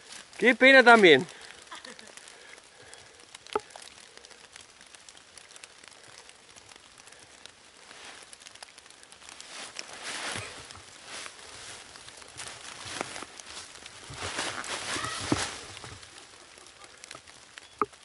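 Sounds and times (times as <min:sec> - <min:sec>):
footsteps through fallen leaves: 0:00.0 - 0:02.0, 0:07.8 - 0:16.8.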